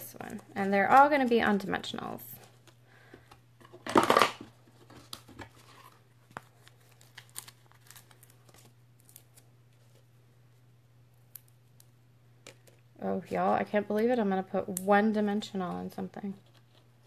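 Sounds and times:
paper tearing rustle: 5.0s - 10.0s.

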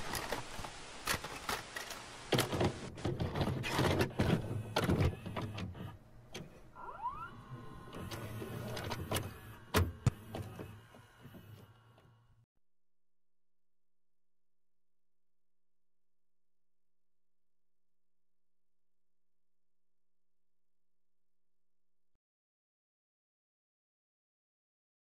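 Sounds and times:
vcr mechanical clicks and clunks: 1.8s - 6.6s
low motor hum: 4.2s - 12.5s.

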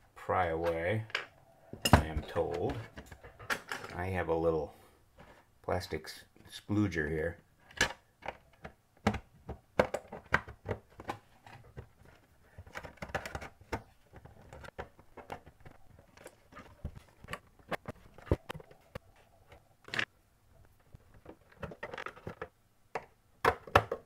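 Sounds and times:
plastic scraping on plastic: 20.8s - 23.1s
plastic clicks and taps: 21.2s - 24.0s.

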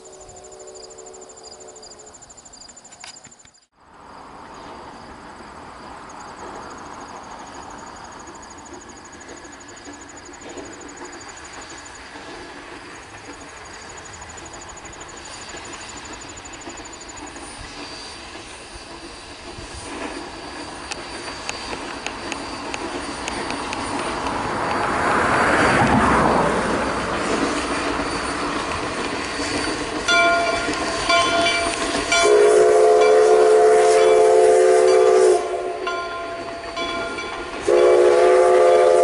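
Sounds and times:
steam locomotive running past: 0.0s - 3.1s, 3.9s - 39.0s
insects trilling: 0.0s - 25.8s, 27.2s - 32.0s.

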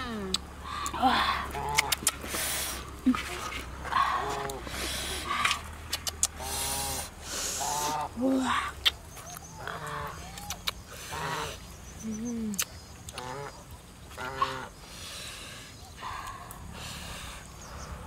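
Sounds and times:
sharp clicks: 5.4s - 6.4s
geese honking: 13.2s - 14.8s.

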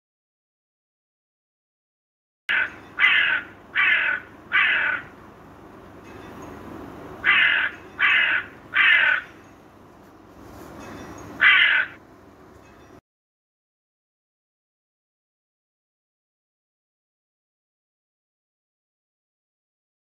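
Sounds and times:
crow cawing: 2.5s - 5.1s, 7.2s - 9.4s, 11.4s - 12.0s.

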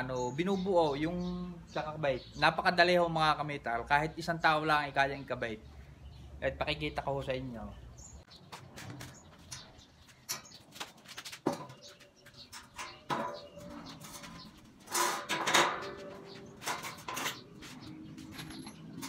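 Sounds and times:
metal bed frames clanking: 12.5s - 19.0s.

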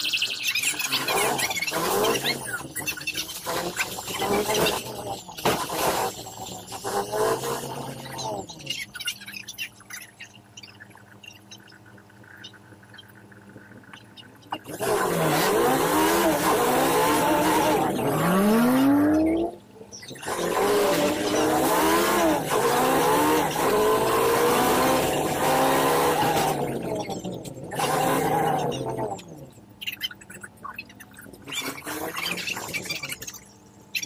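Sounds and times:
bus engine revving: 3.3s - 8.5s, 14.7s - 19.6s, 20.2s - 29.3s.

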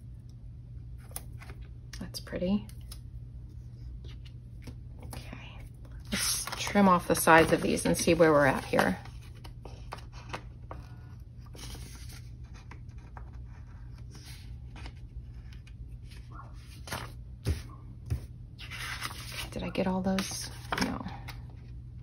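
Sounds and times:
paper rustling: 6.0s - 19.6s.

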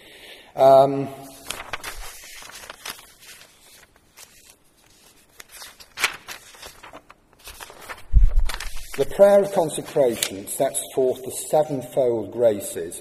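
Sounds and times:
handling rustling: 1.4s - 9.0s.

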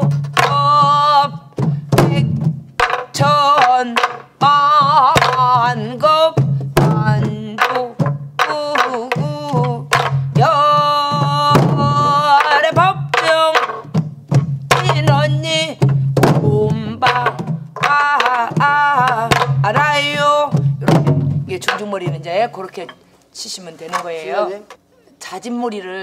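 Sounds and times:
woman singing with vibrato: 0.0s - 13.9s, 14.7s - 22.9s
barrel drum strokes: 1.6s - 23.0s.

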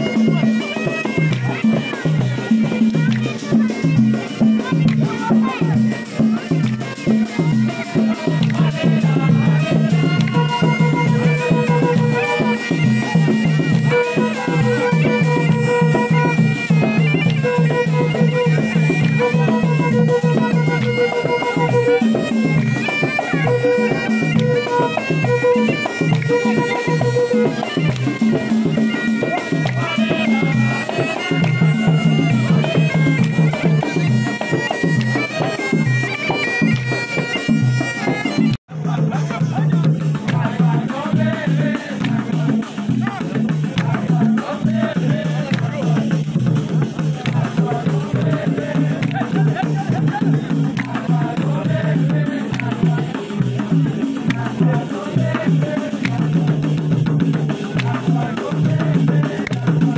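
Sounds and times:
bagpipes playing folk melody: 0.0s - 38.6s
frame drums beating: 0.0s - 59.9s
voices: 0.0s - 59.9s.

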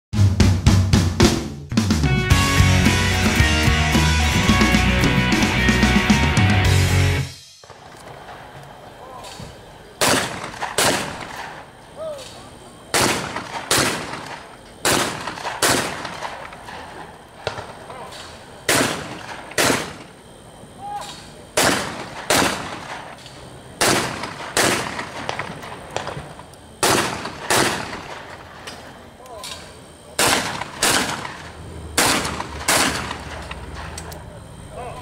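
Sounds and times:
shotgun shots: 10.0s - 11.6s, 12.9s - 20.2s, 21.6s - 28.6s, 30.2s - 33.9s.

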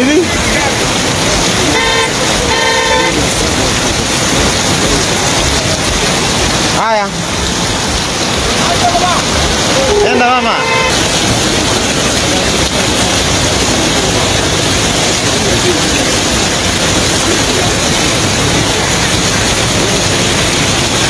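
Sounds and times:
floodwater rushing: 0.0s - 21.0s
rain: 0.0s - 21.0s.

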